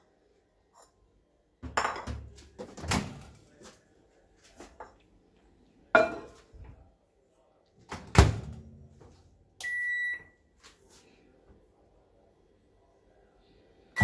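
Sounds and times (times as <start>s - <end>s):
ceramic bowl clinking on glass: 6.0s - 6.4s.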